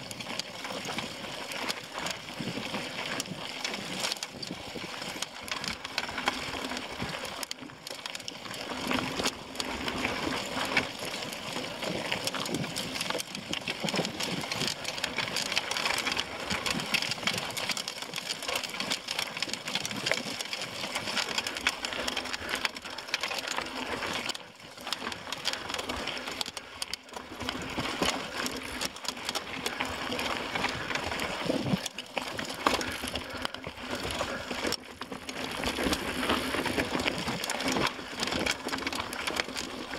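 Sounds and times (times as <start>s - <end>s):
mountain bike rattling: 0.0s - 39.9s.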